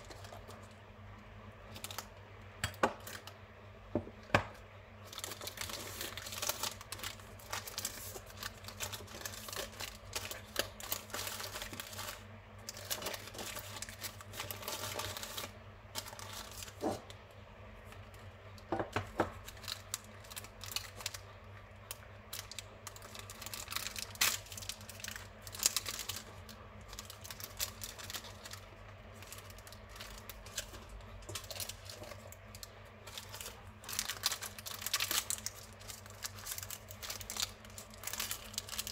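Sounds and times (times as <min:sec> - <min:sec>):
paper and plastic wrapping rustling: 0:00.0 - 0:00.8, 0:05.0 - 0:17.2, 0:18.9 - 0:21.3, 0:21.9 - 0:38.9.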